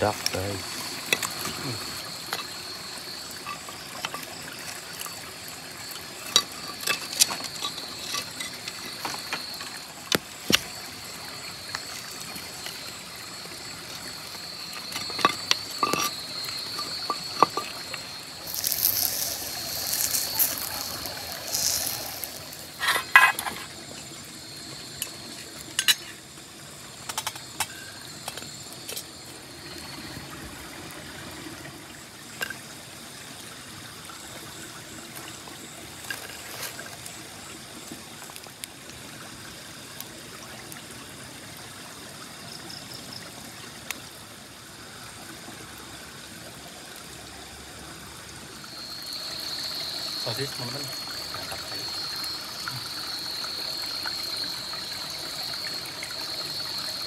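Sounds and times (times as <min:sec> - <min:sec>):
wood scraping and knocking on stones: 0:14.8 - 0:23.7.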